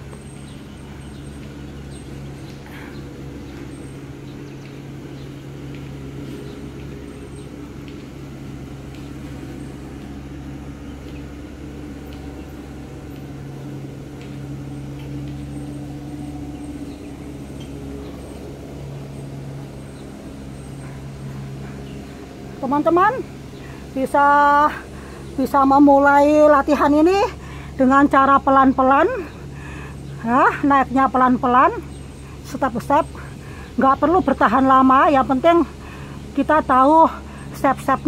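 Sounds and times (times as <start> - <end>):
low mechanical hum: 0.0 - 38.0
faint ticks: 4.4 - 8.2.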